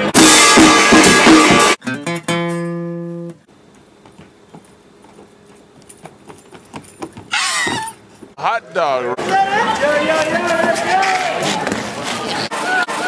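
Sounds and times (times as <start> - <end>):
band music with drums: 0.0 - 1.8.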